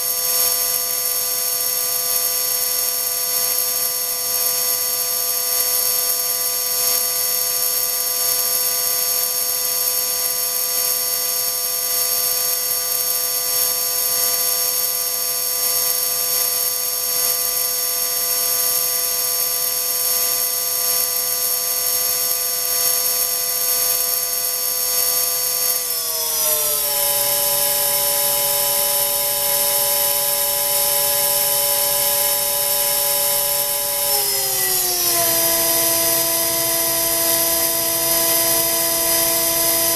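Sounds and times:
electric motor high whine: 0:25.4 - 0:39.9.

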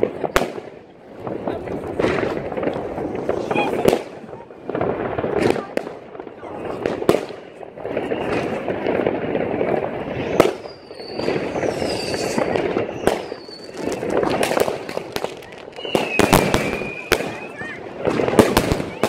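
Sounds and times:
fireworks bangs: 0:00.0 - 0:19.0
fireworks crackling: 0:00.0 - 0:19.0
whistles falling in pitch: 0:15.8 - 0:17.6.

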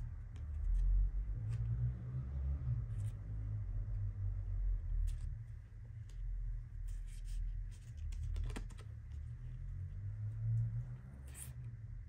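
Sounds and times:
low steady rumble: 0:00.0 - 0:12.0
cards shuffled between fingers: 0:06.8 - 0:09.6.

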